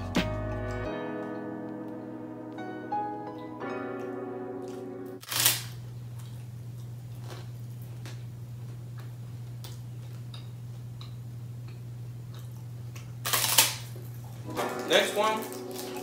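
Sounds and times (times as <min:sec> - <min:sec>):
chewing crunches: 0:04.7 - 0:14.5, 0:15.5 - 0:16.0
puffed rice roll crunching: 0:12.3 - 0:16.0.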